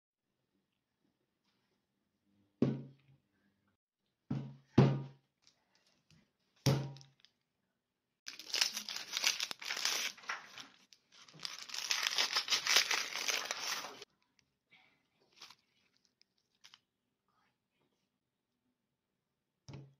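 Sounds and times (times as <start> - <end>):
onion skin crackling and tearing: 8.3 - 14.1.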